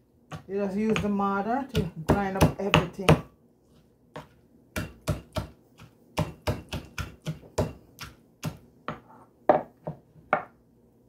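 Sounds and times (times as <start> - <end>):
pestle pounding in a mortar: 0.3 - 3.3, 4.2 - 9.0.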